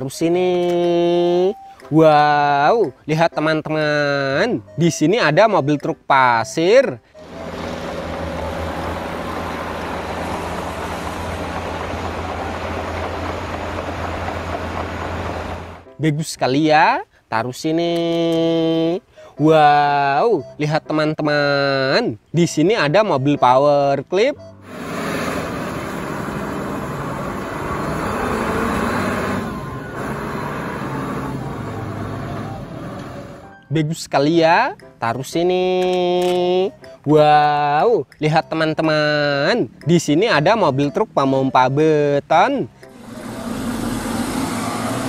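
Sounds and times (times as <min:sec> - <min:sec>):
diesel truck engine running: 0:07.2 - 0:15.9, 0:24.4 - 0:33.5, 0:42.7 - 0:45.0.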